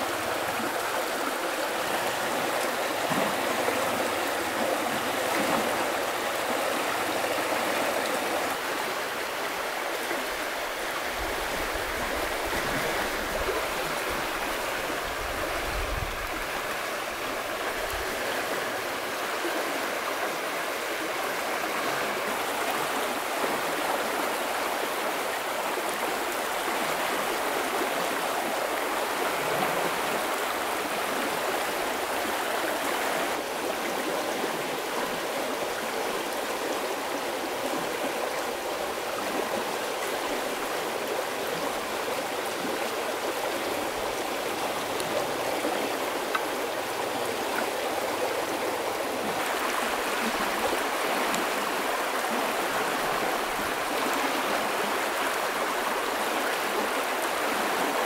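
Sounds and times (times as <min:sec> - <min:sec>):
stream flowing over rocks: 0:00.0 - 0:58.0.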